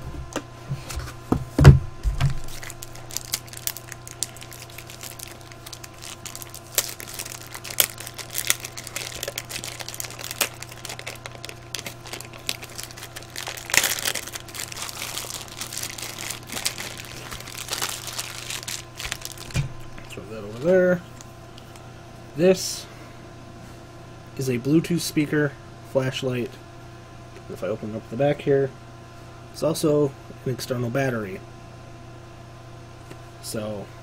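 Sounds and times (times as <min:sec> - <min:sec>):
packaging crinkling: 0:02.1 - 0:21.8.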